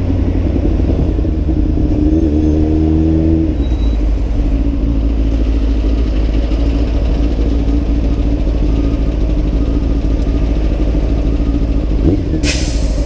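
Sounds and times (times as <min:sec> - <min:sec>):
motorcycle engine running steadily: 0:03.6 - 0:13.0.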